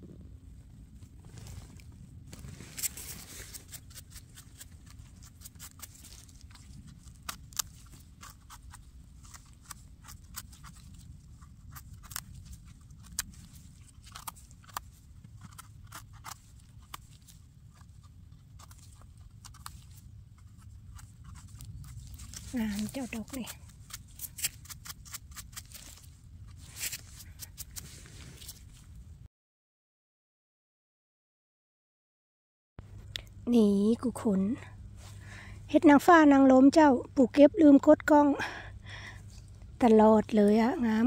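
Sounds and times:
rustling of twigs and leaves: 0:00.4 - 0:29.1
knife scraping mushroom stem: 0:02.3 - 0:28.8.

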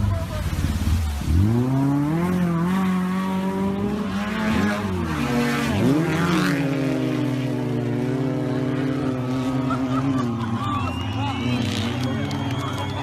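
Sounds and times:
race vehicle engine revving: 0:00.0 - 0:13.0.

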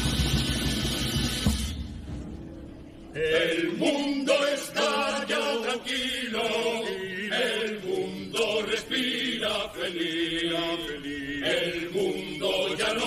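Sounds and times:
chorus singing together: 0:03.1 - 0:13.0.

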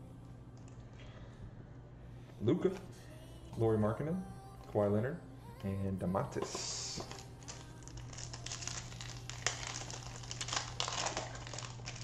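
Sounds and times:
plastic wrapper crinkling and tearing: 0:07.0 - 0:12.0.

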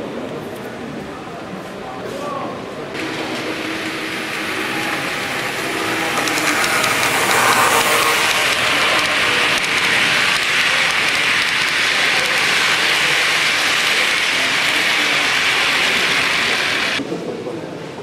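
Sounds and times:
model train wheels hissing on track: 0:03.0 - 0:17.0.

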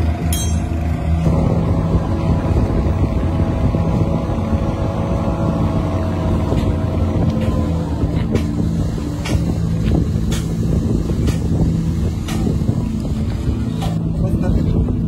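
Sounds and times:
crane engine running: 0:00.0 - 0:15.0.

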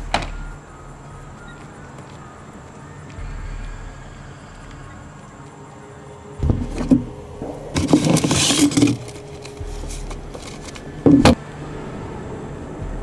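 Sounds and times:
paper rustling: 0:07.7 - 0:11.4.

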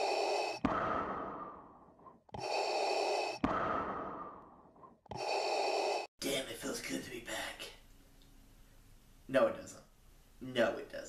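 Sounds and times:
mechanical respirator breathing: 0:00.0 - 0:06.1.

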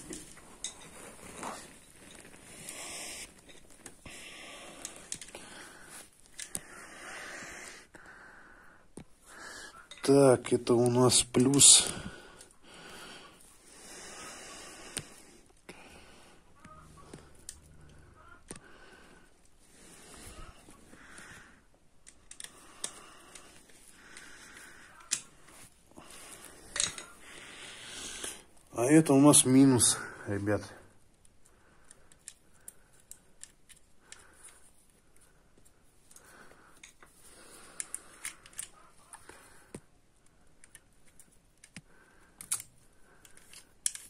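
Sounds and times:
small metallic clicks and taps: 0:09.8 - 0:10.1, 0:31.2 - 0:34.6, 0:40.5 - 0:44.0
screwdriver clicking and scraping metal: 0:22.0 - 0:23.7, 0:26.6 - 0:27.1, 0:42.4 - 0:44.0.

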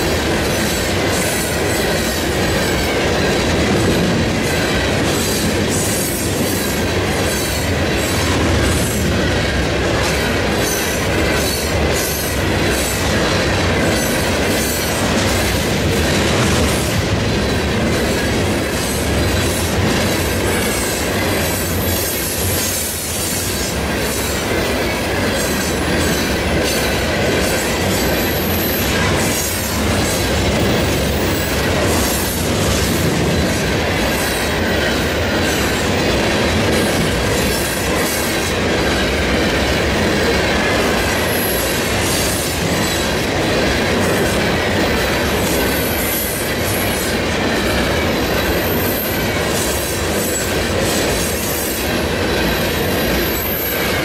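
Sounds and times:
freight train cars rolling: 0:00.0 - 0:54.0
wheels clacking over rail joints: 0:00.0 - 0:54.0.

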